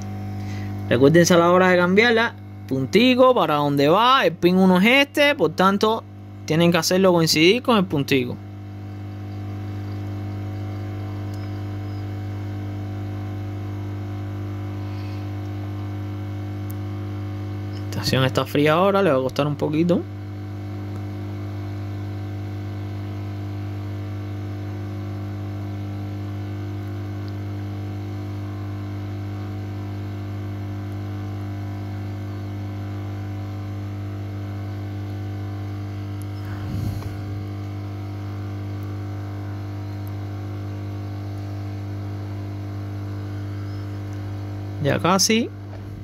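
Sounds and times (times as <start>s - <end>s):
hot air station blowing: 36.2s - 38.5s.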